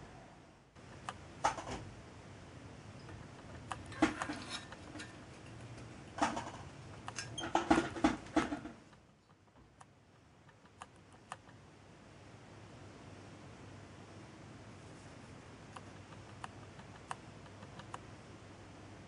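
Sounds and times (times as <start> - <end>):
metal clicks and scrapes: 3.5 - 9.3.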